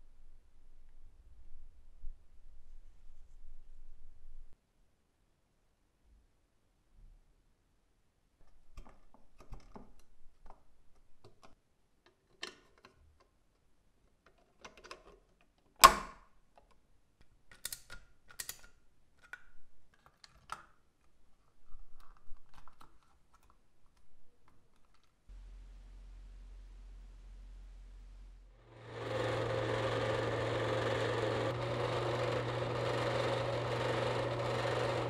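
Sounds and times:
plastic toy parts clicking: 0:16.6 - 0:20.8, 0:21.8 - 0:25.2
steady low hum: 0:25.3 - 0:35.0.

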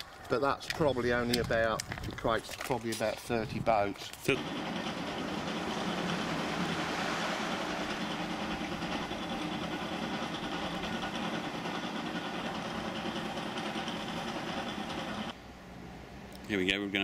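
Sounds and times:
machine running with low hum: 0:04.3 - 0:15.4.

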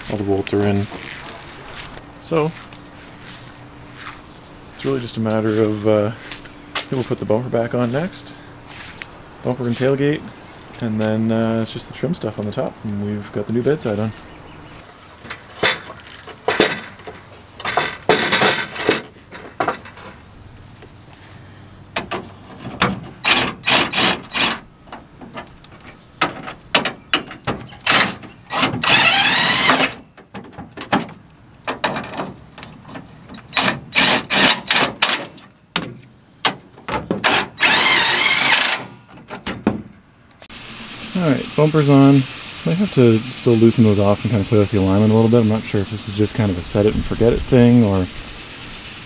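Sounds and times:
cordless drill running: 0:27.9 - 0:29.9, 0:37.6 - 0:38.9.

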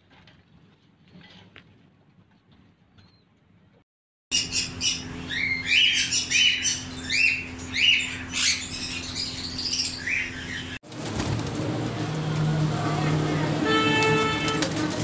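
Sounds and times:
parrots squawking: 0:04.4 - 0:10.8.

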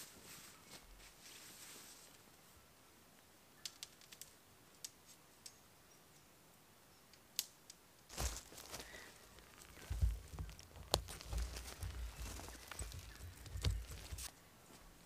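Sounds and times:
tent fabric rustling: 0:00.0 - 0:02.3, 0:08.1 - 0:14.3.

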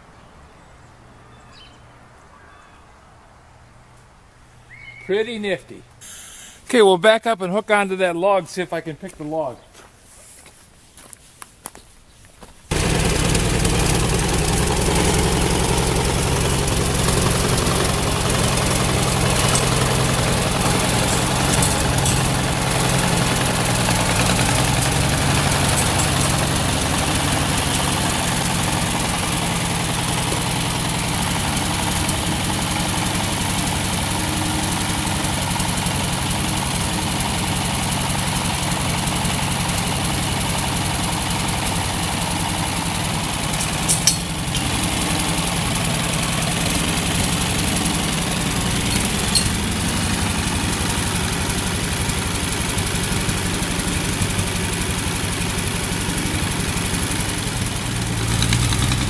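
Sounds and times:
tractor engine running: 0:12.7 - 0:59.0
sharp metal clanks: 0:16.5 - 0:29.2, 0:43.6 - 0:45.0, 0:48.7 - 0:50.3.

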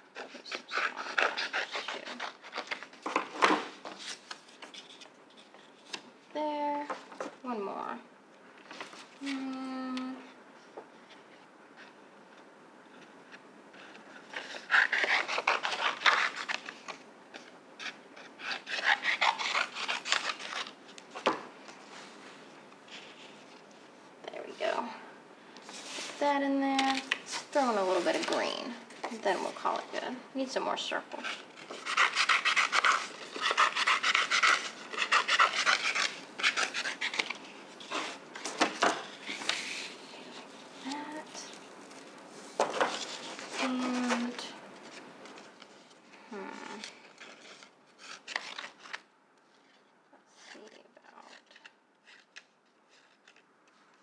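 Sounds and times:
scissors snipping paper: 0:00.2 - 0:02.8, 0:31.3 - 0:37.4.

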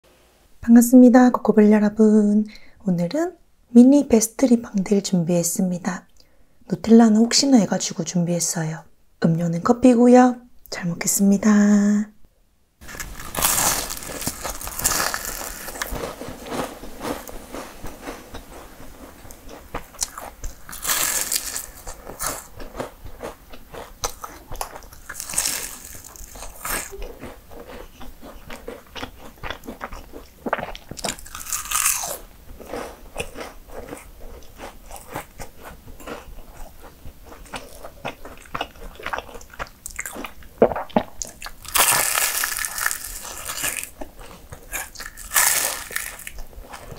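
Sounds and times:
crackly chewing: 0:12.8 - 0:46.9
crunchy pastry bites: 0:12.8 - 0:46.9.

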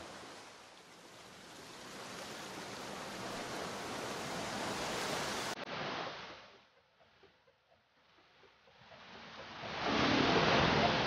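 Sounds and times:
wave breaking: 0:09.7 - 0:11.0.

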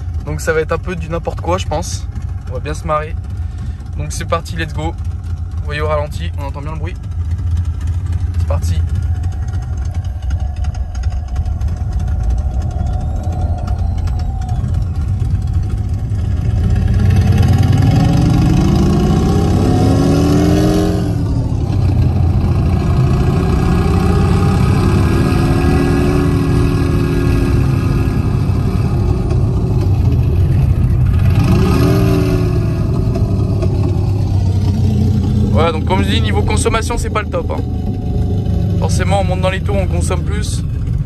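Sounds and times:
low engine and road rumble: 0:00.0 - 0:41.0
synthetic motorcycle engine sound: 0:00.0 - 0:41.0.

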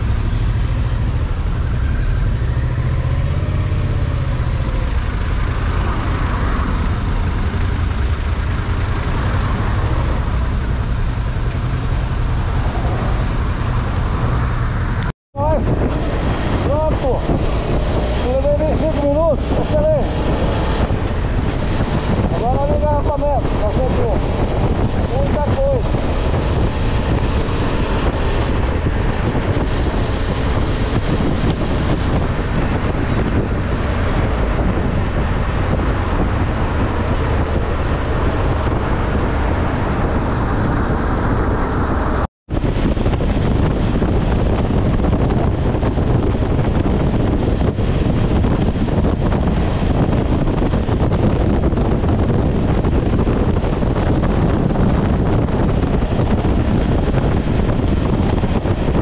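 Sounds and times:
motorcycle engine: 0:00.0 - 0:59.0
road noise: 0:00.0 - 0:59.0
wind rushing over microphone: 0:00.0 - 0:59.0.

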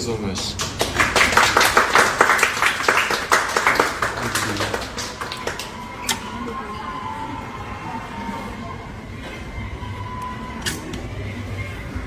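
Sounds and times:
hands clapping: 0:00.3 - 0:06.2.

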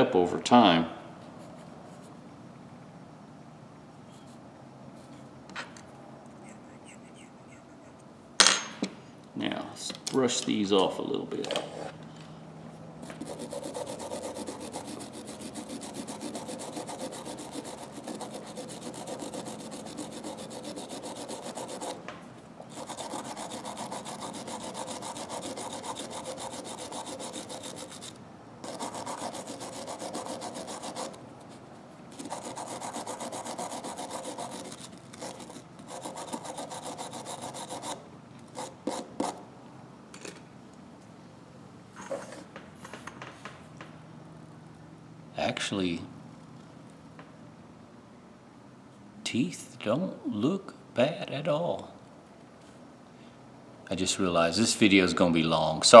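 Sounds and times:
brush scrubbing metal parts: 0:13.2 - 0:22.0, 0:22.7 - 0:31.2, 0:32.2 - 0:37.9.

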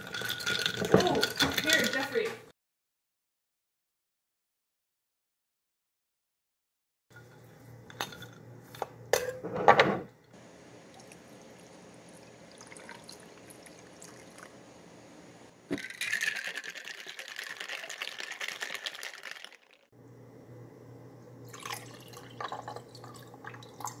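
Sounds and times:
glasses clinking: 0:00.0 - 0:02.1
tea sloshing in a glass jar: 0:00.0 - 0:02.1, 0:10.9 - 0:14.5, 0:15.8 - 0:19.5, 0:21.5 - 0:24.0
tea poured over ice: 0:10.9 - 0:14.6, 0:15.8 - 0:19.7, 0:21.5 - 0:24.0
ice clicking in a glass: 0:15.8 - 0:19.8.

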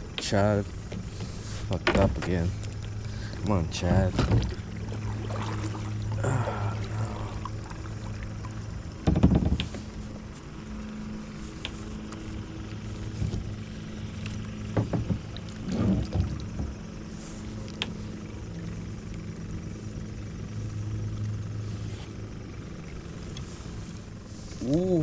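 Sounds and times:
steady low hum: 0:00.0 - 0:25.0
paddle knocking kayak hull: 0:00.8 - 0:09.9, 0:14.5 - 0:17.0.

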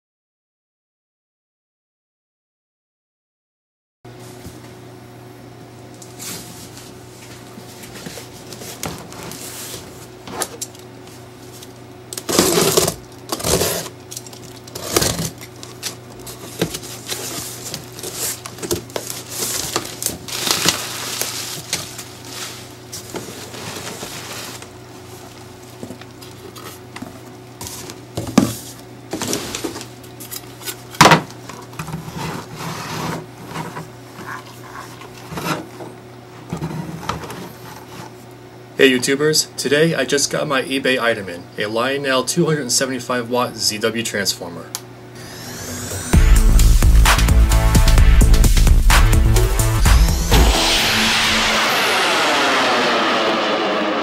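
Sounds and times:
cardboard and bubble wrap rustling: 0:06.2 - 0:35.8.

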